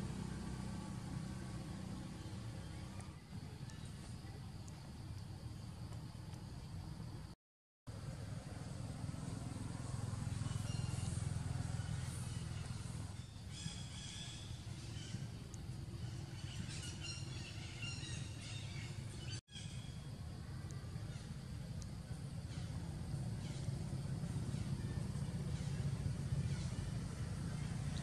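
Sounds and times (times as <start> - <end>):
high chirping calls: 11.8 - 20.1.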